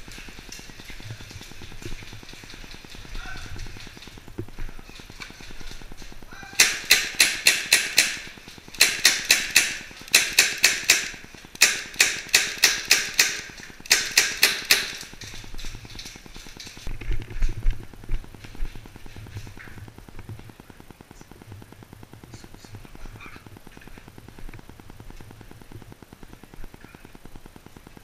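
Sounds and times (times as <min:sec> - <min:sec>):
airsoft gunfire: 0:06.6 - 0:15.5.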